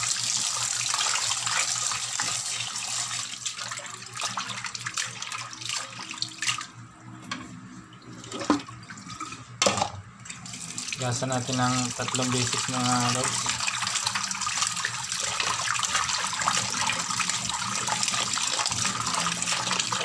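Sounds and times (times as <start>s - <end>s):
tap running into basin: 8.2s - 20.0s.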